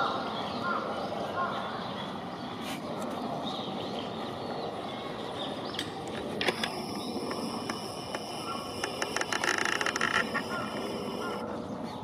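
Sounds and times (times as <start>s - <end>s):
birds chirping rapidly: 6.8s - 12.0s.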